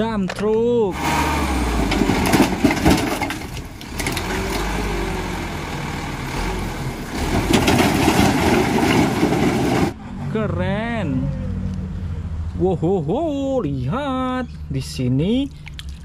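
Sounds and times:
truck engine running: 0.9 - 10.3.

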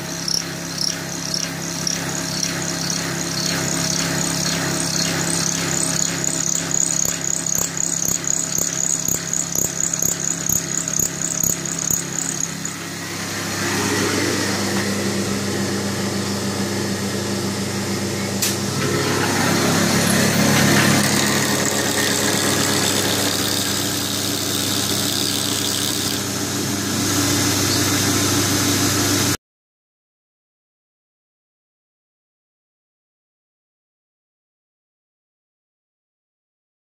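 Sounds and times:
machine cutting aluminium: 0.0 - 15.1, 18.5 - 29.4
light high ticking: 0.2 - 12.7.

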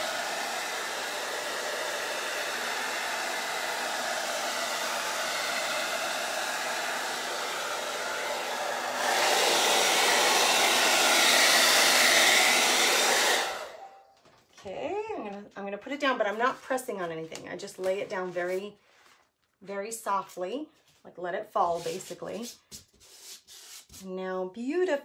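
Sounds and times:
hair dryer blowing: 0.0 - 13.9, 21.6 - 22.9.

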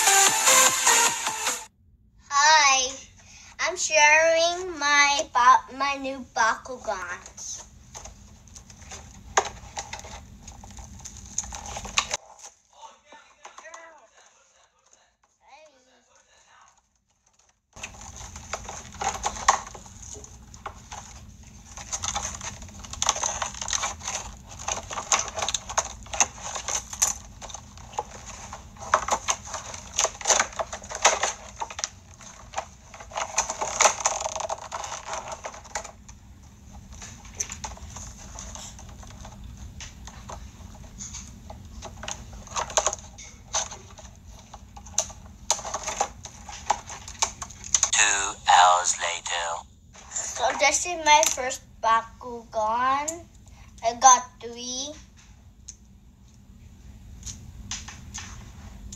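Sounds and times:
plastic packaging crinkling and tearing: 7.9 - 12.6, 17.0 - 36.1, 36.7 - 47.9.

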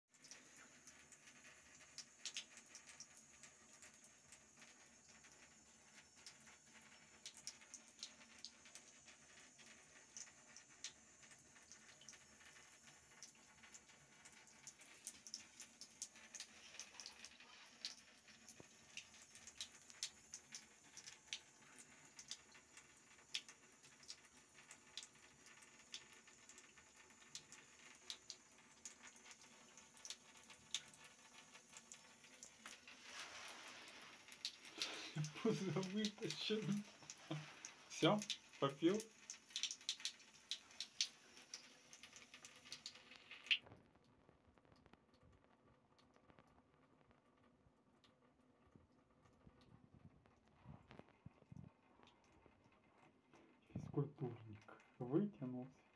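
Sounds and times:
tap water trickling: 0.1 - 55.2
cat lapping water: 7.2 - 43.6
drops falling into tub: 27.4 - 43.8.

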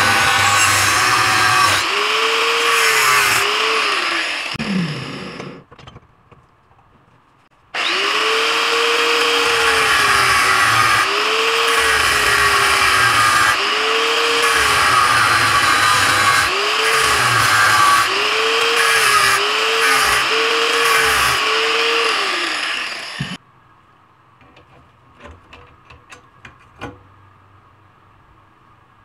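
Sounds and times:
angle grinder cutting metal: 0.0 - 5.6, 7.8 - 23.4.

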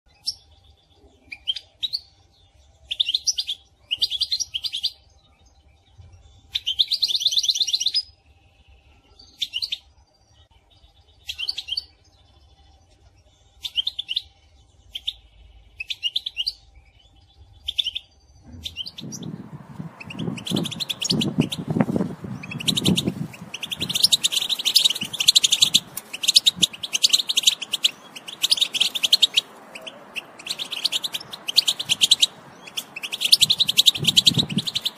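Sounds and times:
low noise: 8.0 - 34.9
goldfinch twittering: 17.7 - 34.9.

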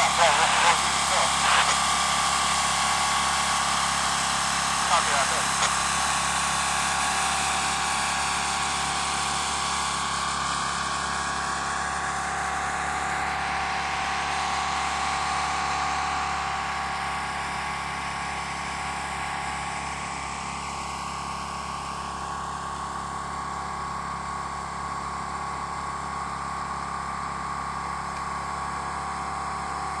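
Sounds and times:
mechanical engine hum: 0.0 - 19.8
constant high tone: 4.8 - 5.7.

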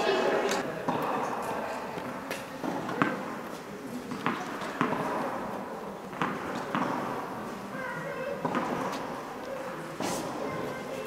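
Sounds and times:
murmur of spectators: 0.0 - 11.0
tennis balls knocking: 6.1 - 7.1.

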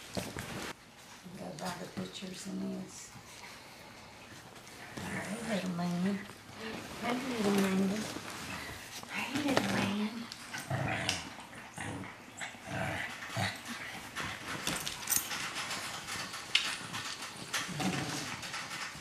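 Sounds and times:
puppies growling and whining: 17.2 - 18.8.

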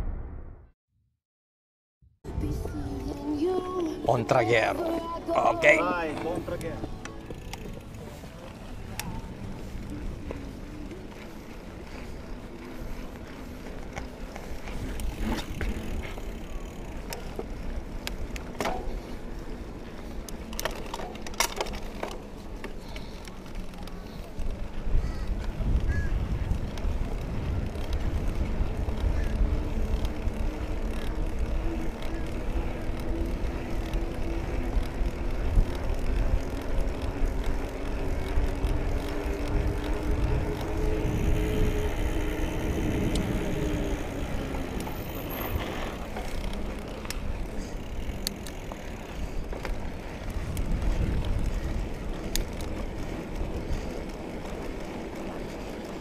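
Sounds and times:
droning hum: 2.3 - 56.0
bike tyres rumbling on dirt trail: 3.2 - 56.0
wind on microphone: 24.8 - 30.6, 38.2 - 45.8, 49.0 - 52.7.

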